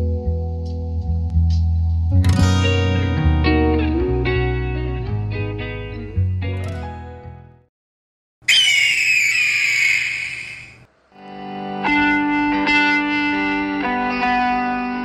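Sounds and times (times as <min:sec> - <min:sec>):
raptor-like screech: 0:08.5 - 0:10.9.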